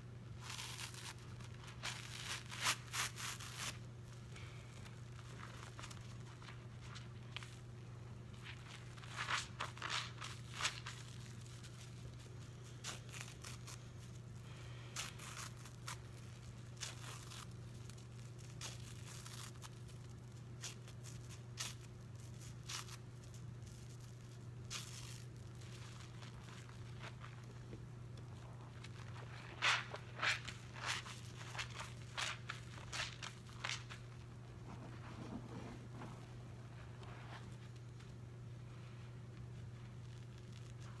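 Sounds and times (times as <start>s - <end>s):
faint low hum: 0.0s - 41.0s
wet sponge tearing and squishing: 0.4s - 3.9s, 8.3s - 34.2s.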